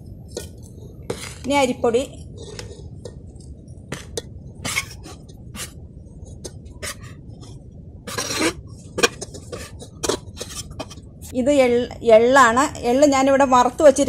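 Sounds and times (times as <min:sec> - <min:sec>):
spoon scraping bowl: 0:01.1 - 0:01.5, 0:02.4 - 0:02.9, 0:04.0 - 0:05.7, 0:06.8 - 0:07.2, 0:08.1 - 0:11.0.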